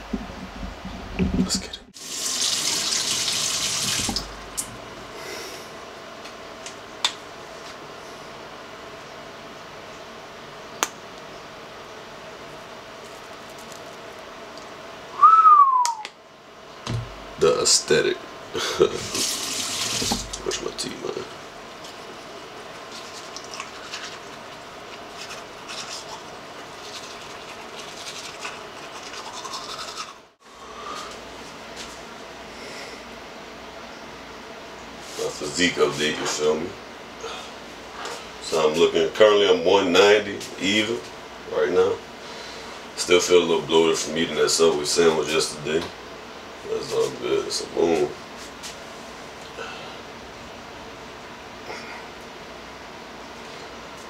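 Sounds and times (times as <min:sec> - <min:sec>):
sink tap running: 0:02.0 - 0:04.7, 0:19.0 - 0:20.6
toothbrush scrubbing teeth: 0:22.8 - 0:30.2.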